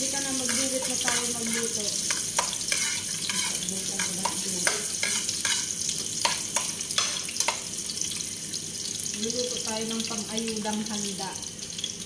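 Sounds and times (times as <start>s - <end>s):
food sizzling in frying pan: 0.0s - 12.0s
utensil scraping pan: 0.4s - 5.7s.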